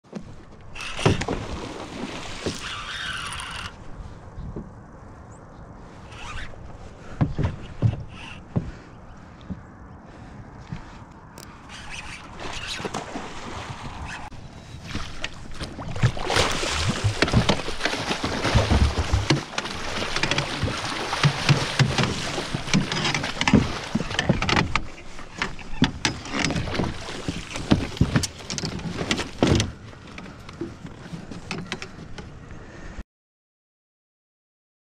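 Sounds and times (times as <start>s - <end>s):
water splashing against a boat: 0.1s - 4.9s, 5.8s - 32.9s
knocks against a boat: 16.9s - 29.8s.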